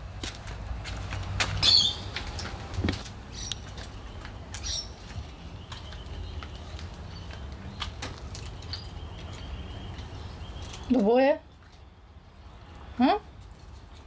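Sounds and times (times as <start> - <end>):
high bird chirps: 1.6 - 2.1, 3.3 - 7.4.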